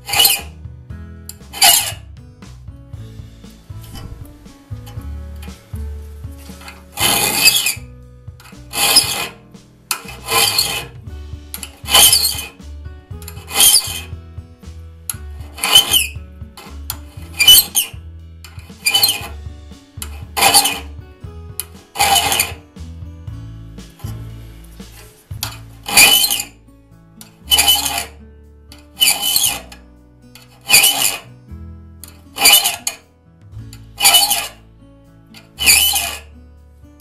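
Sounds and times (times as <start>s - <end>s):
file rasping on saw teeth: 0.0s - 0.6s, 1.4s - 2.0s, 6.4s - 7.9s, 8.5s - 11.0s, 11.6s - 12.6s, 13.3s - 14.1s, 15.4s - 18.0s, 18.6s - 19.4s, 20.1s - 20.9s, 21.9s - 22.6s, 25.8s - 26.5s, 27.5s - 28.2s, 29.0s - 29.7s, 30.5s - 31.3s, 32.4s - 33.0s, 34.0s - 34.6s, 35.5s - 36.3s.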